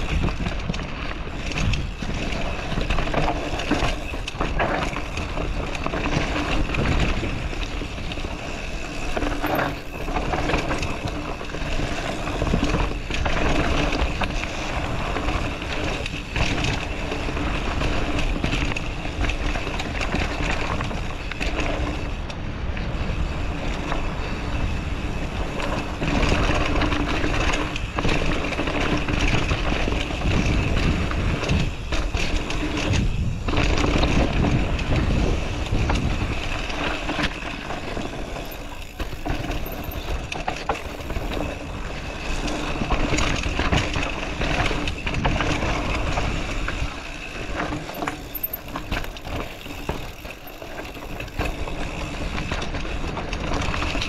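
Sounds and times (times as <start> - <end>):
bike knocks and rattles: 0.0 - 22.2, 23.8 - 54.0.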